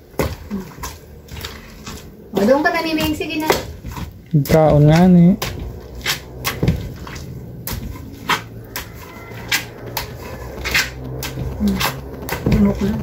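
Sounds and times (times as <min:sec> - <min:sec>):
wooden pestle pounding in mortar: 0:00.0 - 0:13.0.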